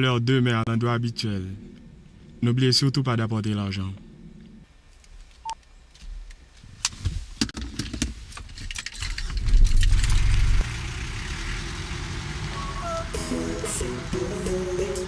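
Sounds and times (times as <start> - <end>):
truck engine rumble: 8.9 - 15.0.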